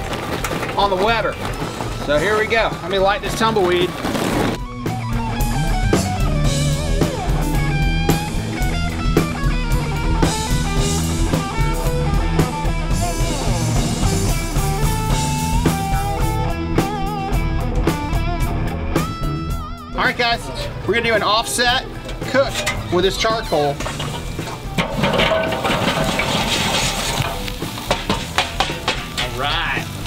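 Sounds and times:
bass: 0.0 - 30.0
drum kit beat: 0.0 - 30.0
guitar lead: 4.6 - 20.9.

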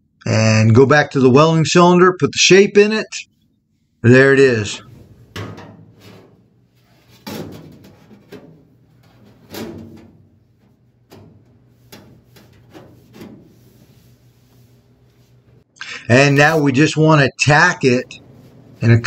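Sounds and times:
metal clunks and scrapes: 4.8 - 15.6.

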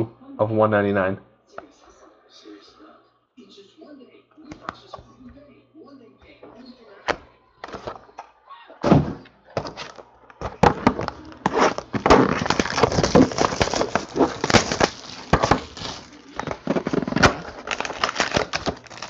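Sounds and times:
cardboard boxes tapping and scraping: 8.9 - 19.0.

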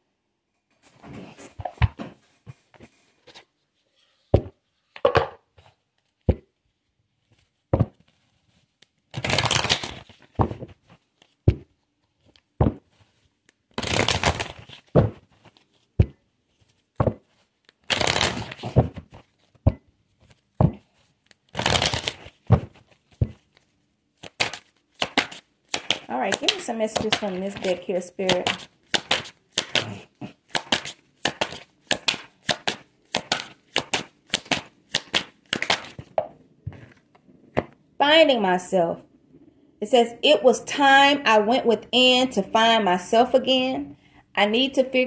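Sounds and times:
cards rustling as shuffled: 7.2 - 37.1
cards tapping and clicking: 9.1 - 13.0, 17.0 - 23.6, 24.2 - 37.0.

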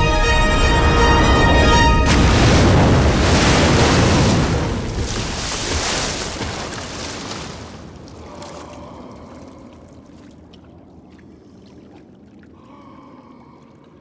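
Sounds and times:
droplet splashes: 2.1 - 12.4
water splashing around swimmer: 2.1 - 12.7
water lapping: 2.1 - 14.0.

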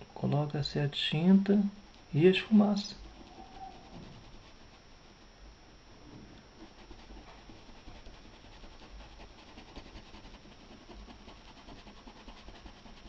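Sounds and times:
paintbrush scrubbing fabric: 2.0 - 5.2, 6.6 - 13.0.

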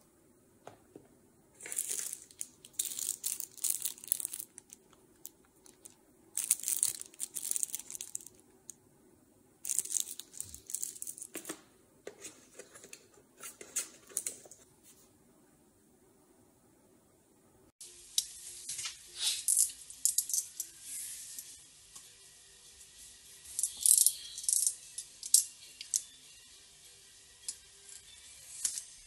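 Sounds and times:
plastic bag crinkling: 1.6 - 8.4, 9.6 - 11.5.

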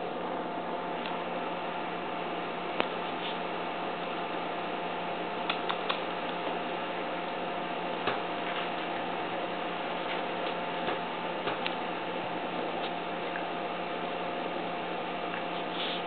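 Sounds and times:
steady hiss and hum: 0.0 - 16.0.

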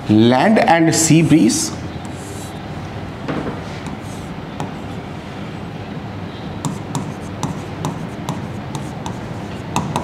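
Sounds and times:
room noise: 0.0 - 10.0
marker writing on whiteboard: 2.0 - 2.6, 3.4 - 5.7, 6.6 - 10.0.

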